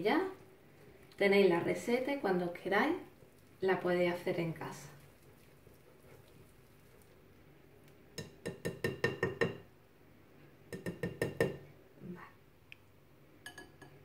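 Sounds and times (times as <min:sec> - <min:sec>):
whisk clinking on glass bowl: 0:13.4 - 0:14.0.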